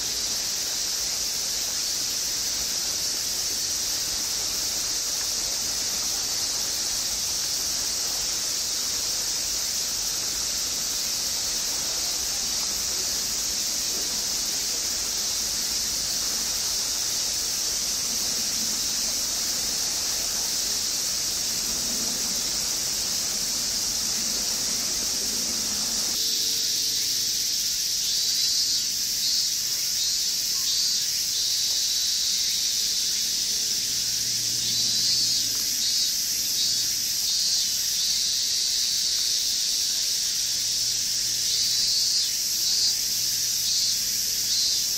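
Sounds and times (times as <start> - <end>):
cicadas droning: 0.0 - 44.9
fast-pulsing cicada call: 0.0 - 44.9.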